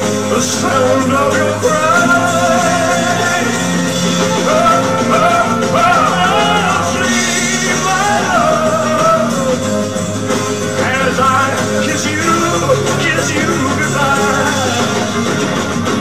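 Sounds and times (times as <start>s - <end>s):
man singing into a microphone: 0.0s - 9.9s, 10.7s - 15.3s
ballad backing music: 0.0s - 16.0s.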